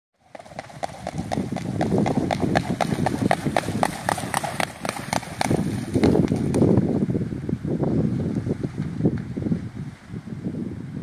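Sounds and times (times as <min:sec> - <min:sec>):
swan feet slapping water: 0:02.6 - 0:06.7.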